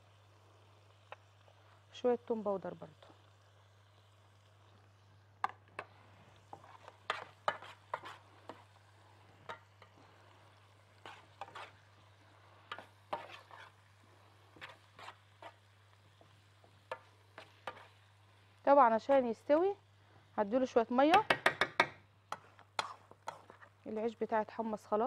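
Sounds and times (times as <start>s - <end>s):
metal spoon scraping metal tray: 6.5s - 8.2s, 11.0s - 11.8s, 12.7s - 13.8s, 14.6s - 15.6s.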